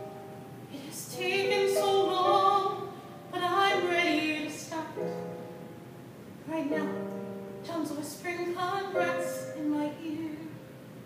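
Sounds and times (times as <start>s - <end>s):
woman singing a slow ballad: 0.7s - 5.3s, 6.4s - 10.7s.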